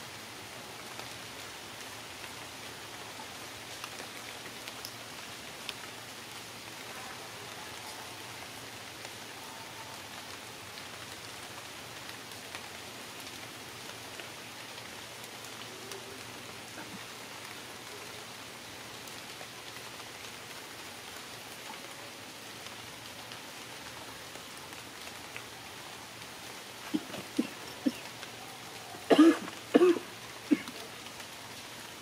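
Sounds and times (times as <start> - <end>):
steady rain hiss: 0.0 - 32.0
faint drips: 25.0 - 31.5.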